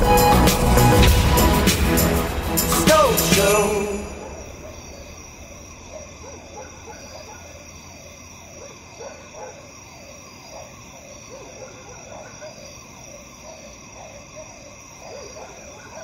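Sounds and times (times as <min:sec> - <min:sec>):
pop music: 0:00.0 - 0:04.6.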